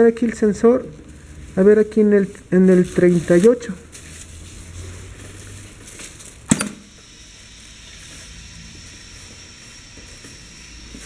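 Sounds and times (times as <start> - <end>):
pneumatic cylinder clack: 6.5 - 6.9.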